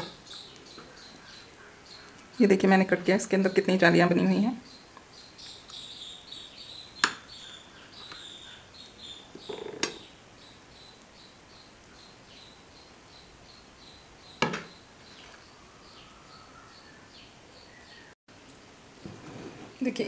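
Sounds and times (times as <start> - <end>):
small bird chirping: 0.0 - 2.4, 4.6 - 18.2.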